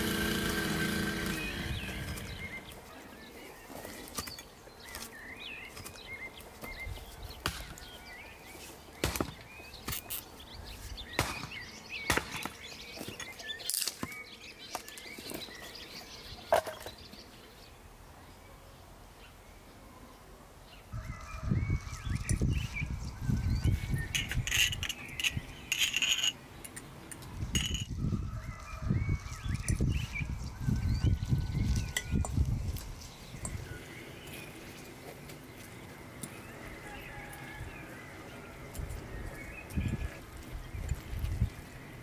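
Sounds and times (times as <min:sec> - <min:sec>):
birds chirping: 0:00.0 - 0:42.0
axe chopping wood: 0:09.0 - 0:10.1, 0:11.2 - 0:12.6.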